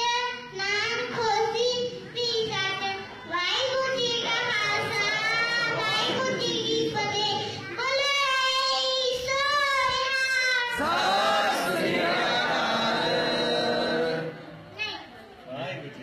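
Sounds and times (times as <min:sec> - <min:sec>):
girl chanting a prayer: 0:00.0 - 0:10.8.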